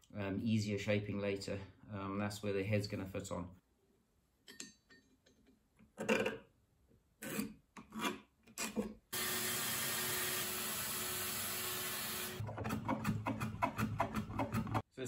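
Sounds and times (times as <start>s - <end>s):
bandsaw cutting wood: 9.2s - 14.8s.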